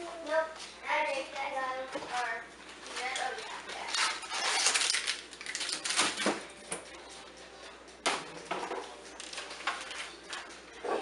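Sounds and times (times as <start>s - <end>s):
plastic rustling: 2.0s - 6.4s.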